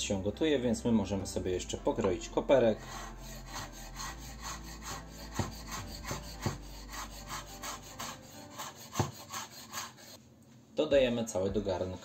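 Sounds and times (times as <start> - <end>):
knife chopping on wooden board: 4.9 - 6.7, 7.4 - 10.0.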